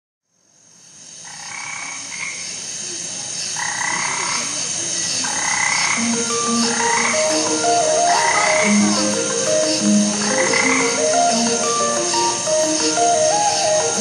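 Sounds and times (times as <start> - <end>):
frogs croaking: 0.3 - 14.0
steady high hiss: 0.3 - 14.0
held musical notes: 5.8 - 14.0.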